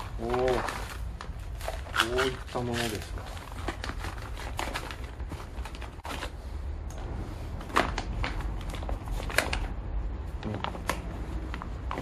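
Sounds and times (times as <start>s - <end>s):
plastic bag crinkling: 0.0s - 6.4s.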